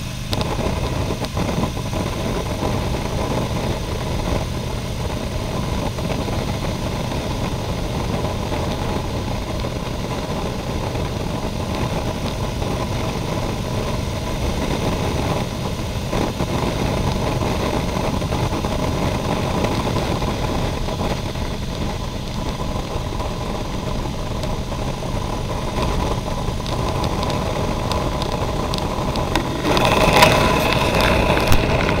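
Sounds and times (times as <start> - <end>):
motorcycle engine cruising: 0.0 - 32.0
wind rushing: 25.0 - 32.0.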